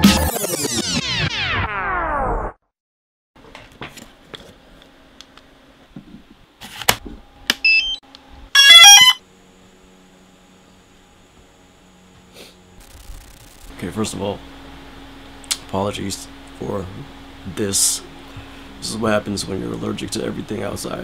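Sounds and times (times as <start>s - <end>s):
electronic startup beeps: 8.6s - 9.2s.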